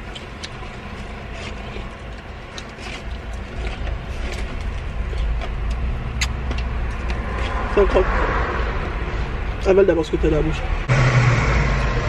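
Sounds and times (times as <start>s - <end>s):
food being chewed: 0.0s - 7.6s.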